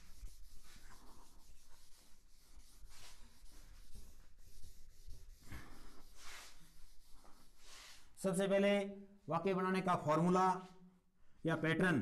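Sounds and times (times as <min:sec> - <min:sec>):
rubbing whiteboard: 0:00.0 - 0:08.2.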